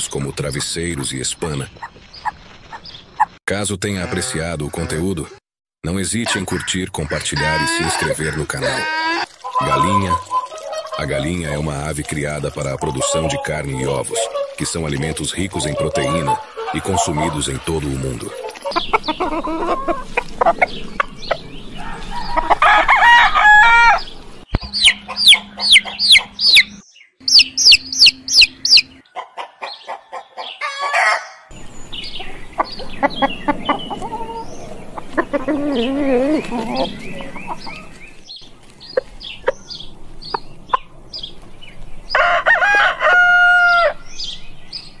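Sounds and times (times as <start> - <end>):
hens clucking: 1.8 - 5.2, 6.1 - 23.8, 24.6 - 26.7, 27.3 - 31.2, 32.6 - 38.1
chicks peeping: 6.1 - 22.6, 24.0 - 41.5
rooster crowing: 21.8 - 24.1, 30.6 - 31.5, 42.1 - 44.0.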